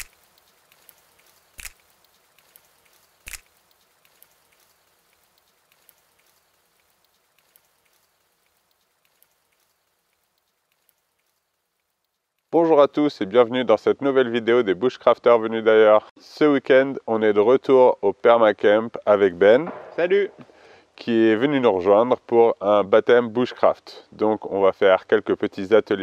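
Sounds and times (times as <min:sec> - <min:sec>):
loud wood snaps: 0:00.0 - 0:06.4, 0:19.7 - 0:20.6
campfire crackling: 0:00.0 - 0:13.3, 0:19.4 - 0:21.2.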